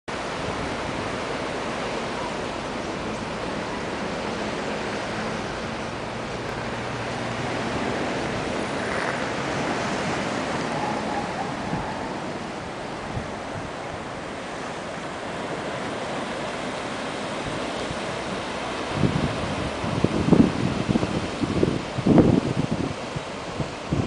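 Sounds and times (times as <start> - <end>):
ocean surf on rocky shore: 0.1 - 24.0.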